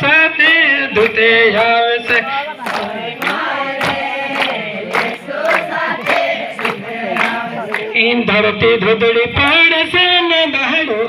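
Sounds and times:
percussive beat: 0:00.0 - 0:08.1
group singing: 0:00.0 - 0:08.2.

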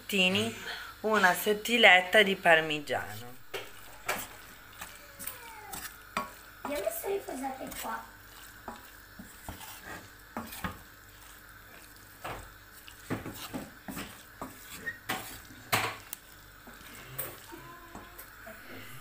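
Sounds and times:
wooden spoon stirring in pot: 0:00.0 - 0:19.0
spoon knocking against pot: 0:13.1 - 0:16.0.

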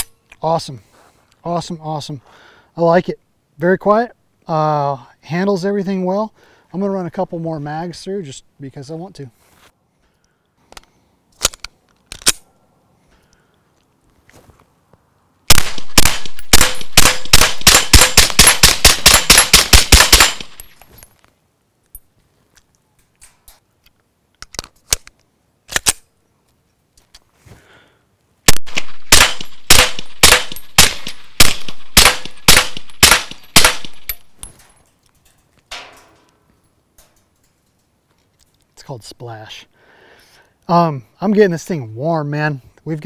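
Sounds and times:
suppressed pistol firing rapidly: 0:15.5 - 0:20.5, 0:28.5 - 0:34.1.

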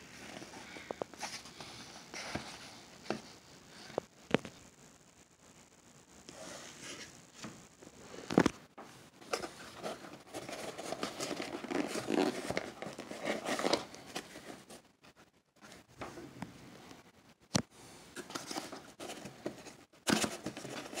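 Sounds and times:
cardboard crackling and scraping: 0:00.0 - 0:04.0, 0:09.2 - 0:14.8, 0:18.1 - 0:21.0
cardboard ripping: 0:09.6 - 0:14.4.

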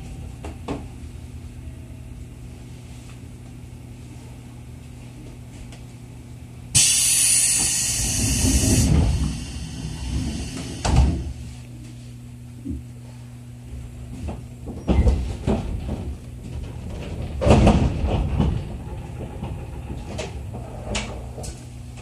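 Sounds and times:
train car hum: 0:00.0 - 0:22.0
loud hiss of air: 0:06.8 - 0:11.4
train doors sliding shut: 0:06.8 - 0:11.4.

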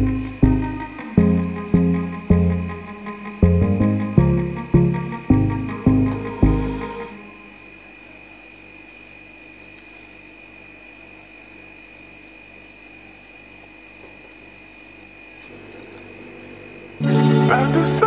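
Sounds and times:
high-pitched whine: 0:00.0 - 0:08.6, 0:15.5 - 0:18.0.

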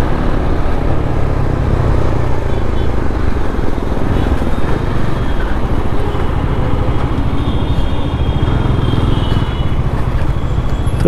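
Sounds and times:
motorcycle engine running: 0:06.0 - 0:11.0.

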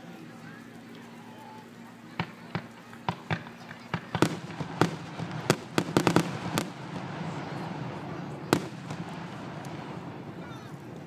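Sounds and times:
fireworks bangs and pops: 0:02.2 - 0:10.3
fireworks hiss: 0:02.2 - 0:10.4.

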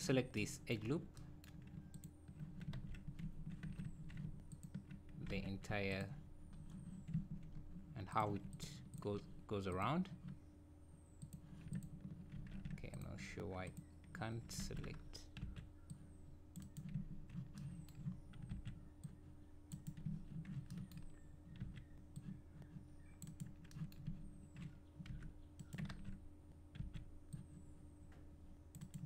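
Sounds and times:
low electrical hum: 0:00.0 - 0:29.0
computer keyboard keystrokes: 0:14.6 - 0:27.6, 0:28.7 - 0:29.0.

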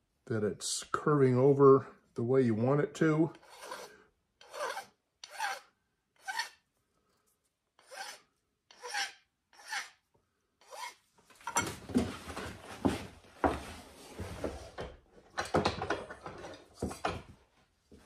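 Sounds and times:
hand file rasping on wood: 0:03.3 - 0:06.6, 0:07.8 - 0:10.0, 0:10.6 - 0:11.0.

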